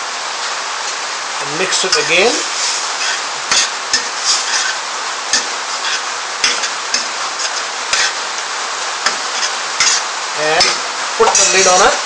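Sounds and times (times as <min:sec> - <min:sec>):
food sizzling in hot oil: 0:00.0 - 0:12.0
spoon scraping a metal pan: 0:01.9 - 0:08.2, 0:09.0 - 0:12.0.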